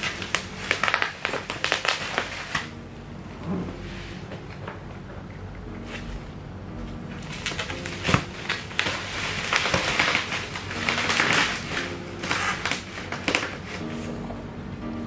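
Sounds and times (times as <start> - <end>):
plastic wrapping crackling: 0.0 - 2.8, 7.1 - 14.2.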